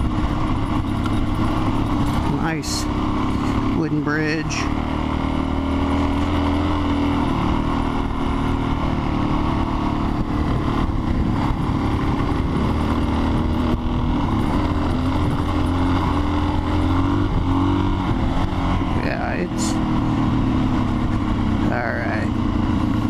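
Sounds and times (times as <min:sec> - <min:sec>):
motorcycle engine running: 0:00.0 - 0:23.0
wind noise: 0:06.7 - 0:19.4.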